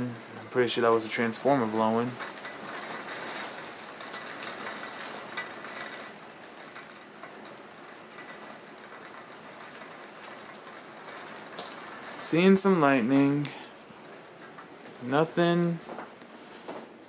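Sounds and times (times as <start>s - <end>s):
heavy rain hissing: 0.0s - 17.0s.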